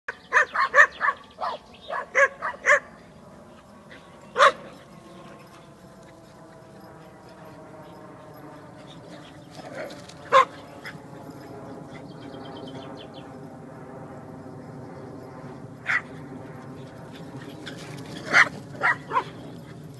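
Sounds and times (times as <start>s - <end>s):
dog barking: 0.3s - 2.9s, 4.4s - 4.7s, 10.3s - 10.5s, 15.9s - 16.1s, 18.3s - 19.3s.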